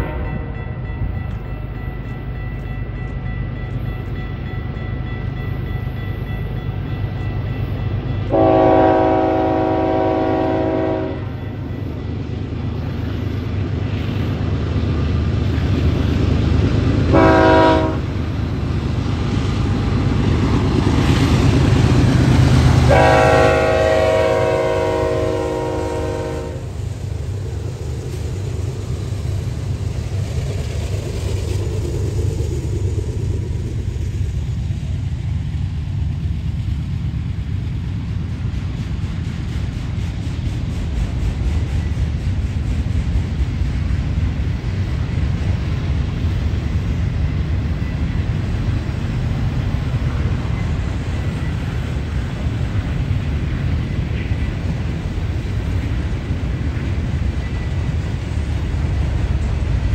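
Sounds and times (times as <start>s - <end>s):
train wheels rolling on rails: 0.0s - 59.9s
locomotive air horn: 8.3s - 11.4s, 17.1s - 18.1s, 22.8s - 26.7s.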